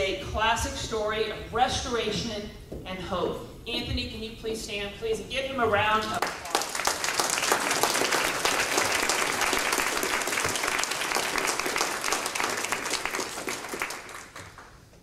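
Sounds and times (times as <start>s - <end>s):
crowd applauding: 6.2s - 14.8s.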